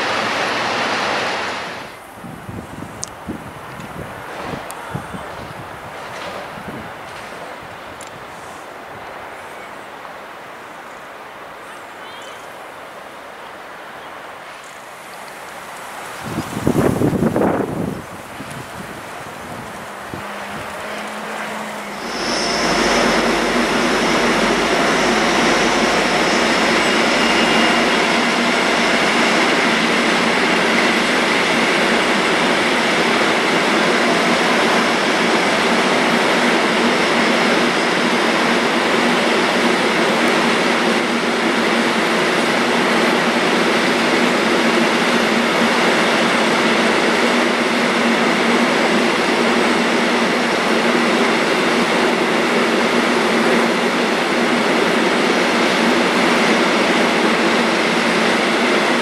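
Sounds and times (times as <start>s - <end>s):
train wheels rolling on rails: 0.0s - 11.0s, 14.2s - 59.0s.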